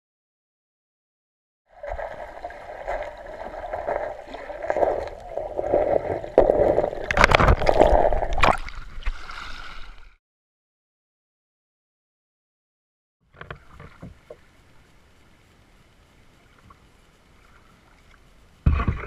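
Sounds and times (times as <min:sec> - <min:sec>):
water sloshing around kayak: 0:01.7 - 0:10.0.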